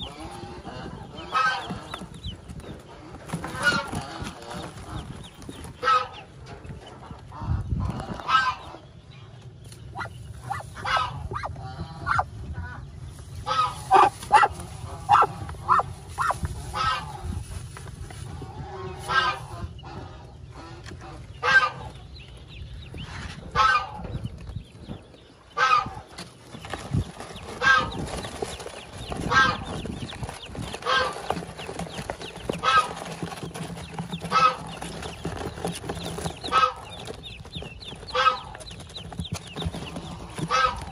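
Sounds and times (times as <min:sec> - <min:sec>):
waterfowl honking: 0:10.0 - 0:12.3, 0:20.6 - 0:21.9, 0:25.6 - 0:26.0, 0:34.2 - 0:34.8, 0:36.5 - 0:36.8, 0:38.1 - 0:38.6, 0:40.1 - 0:40.9.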